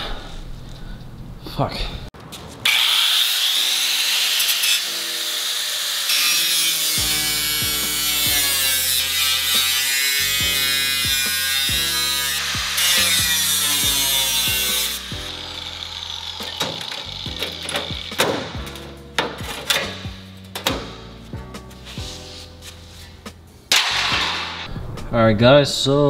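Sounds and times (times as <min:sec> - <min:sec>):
angle grinder cutting metal: 0:02.6 - 0:20.2
background music with a beat: 0:17.3 - 0:24.7.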